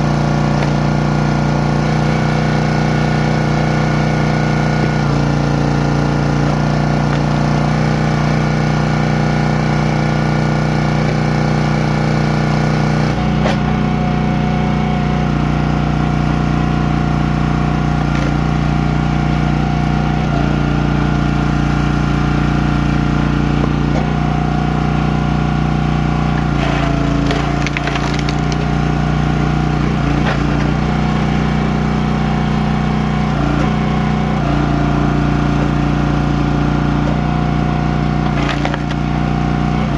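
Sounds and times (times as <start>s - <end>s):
small gas engine running: 0.0s - 39.9s
wood cracking and splitting: 0.1s - 2.7s, 5.0s - 8.4s, 18.0s - 18.7s, 26.3s - 31.4s, 38.1s - 39.3s.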